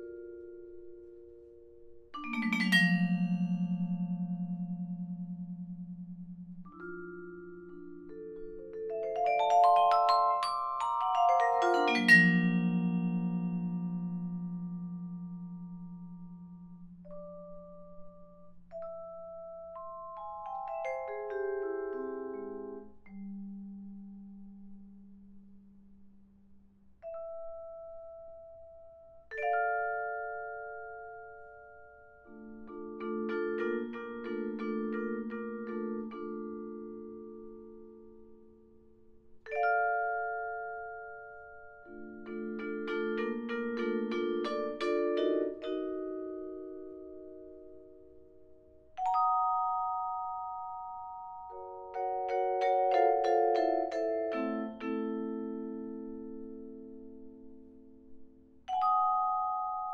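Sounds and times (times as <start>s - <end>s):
soft vibraphone chord: 0.0s - 25.4s, 27.0s - 59.9s
vibraphone note with vibrato: 2.2s - 8.1s.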